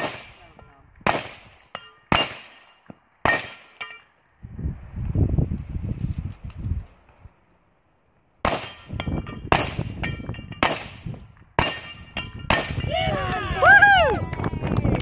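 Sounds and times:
gunshots: 0.0s - 3.8s, 8.4s - 8.9s
steel plate clanging and ringing: 1.1s - 4.2s, 8.5s - 13.0s.

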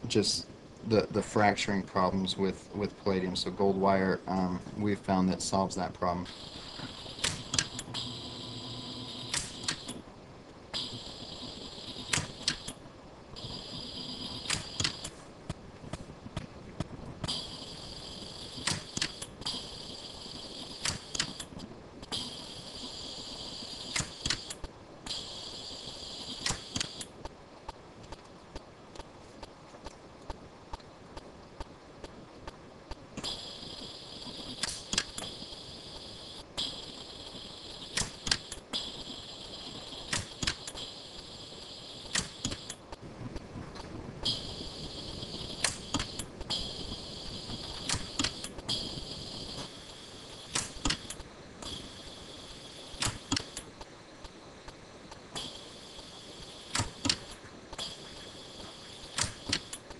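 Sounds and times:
faint high-pitched hum: 0.0s - 59.9s
steady high hiss: 0.0s - 59.9s
welder snapping clicks: 7.2s - 7.9s, 9.3s - 10.0s, 18.6s - 19.3s, 20.8s - 21.6s, 34.6s - 35.3s, 38.0s - 38.6s, 40.1s - 40.8s, 42.1s - 42.8s, 45.6s - 46.3s, 50.5s - 51.2s, 53.0s - 53.7s, 56.7s - 57.9s, 59.2s - 59.8s
welder sharp snaps: 9.3s - 9.9s, 34.6s - 35.2s, 40.1s - 40.8s, 50.5s - 51.8s, 53.0s - 53.7s, 59.2s - 59.8s.

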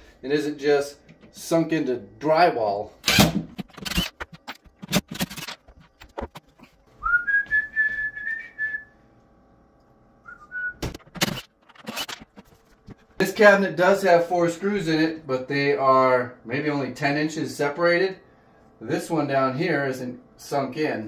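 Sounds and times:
high thin whistle-like tone: 10.2s - 10.8s.

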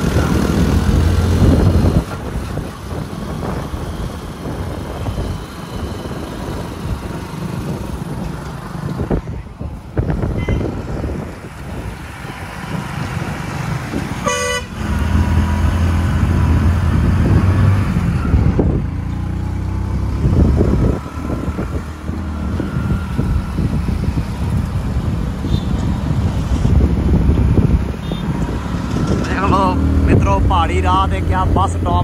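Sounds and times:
wind rushing over microphone: 0.0s - 32.0s
vehicle horn honking: 10.4s - 10.7s, 14.2s - 14.8s, 28.0s - 28.3s.

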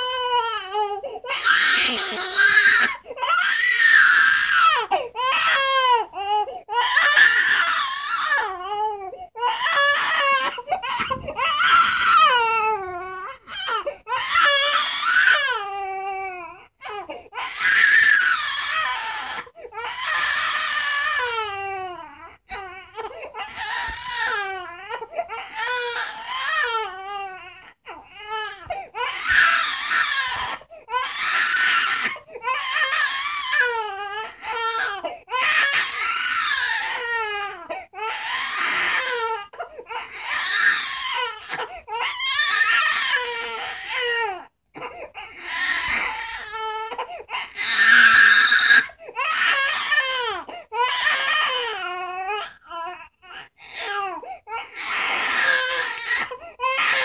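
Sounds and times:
infant crying: 0.0s - 57.0s
infant breathing: 0.9s - 1.3s, 6.3s - 6.7s.

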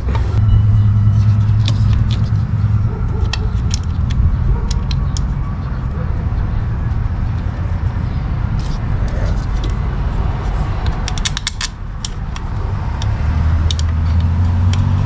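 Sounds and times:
steady low hum: 0.0s - 11.1s
clicks and taps of tools: 10.8s - 14.9s.

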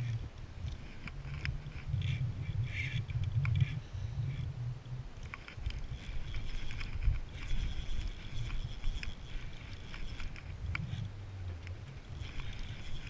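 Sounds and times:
low rumble: 0.0s - 7.2s
fishing reel clicking and whirring: 0.0s - 13.0s.

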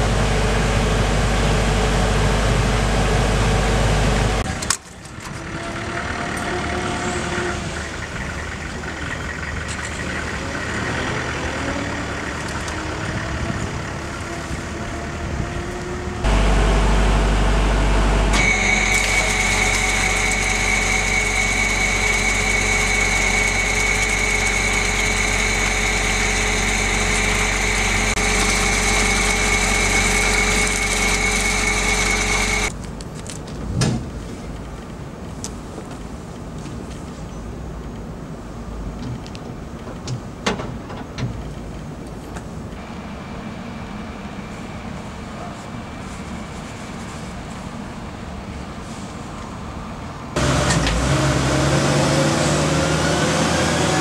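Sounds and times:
machinery humming: 0.0s - 32.7s, 50.4s - 54.0s
steady high whine: 13.9s - 32.8s.

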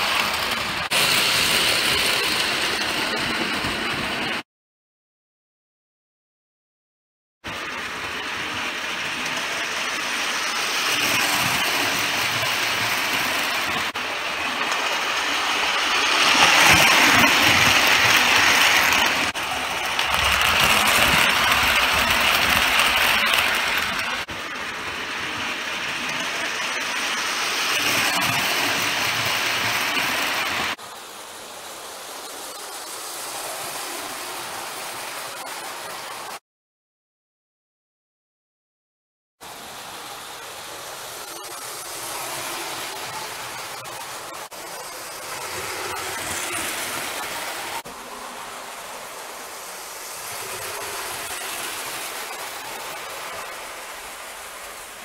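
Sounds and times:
toy train motor running: 0.0s - 4.1s, 7.6s - 35.9s, 40.2s - 47.8s, 48.8s - 54.9s
toy train wheels clattering: 8.9s - 24.3s.

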